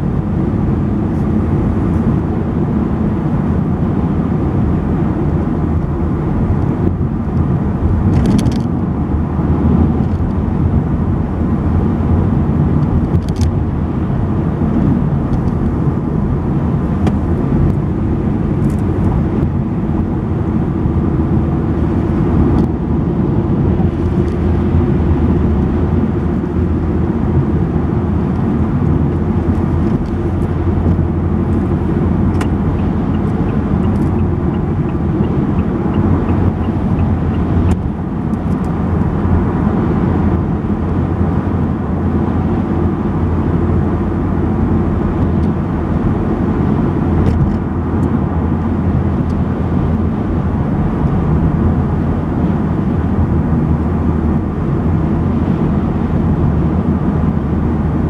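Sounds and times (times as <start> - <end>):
car tyres and engine rumble: 0.0 - 58.0.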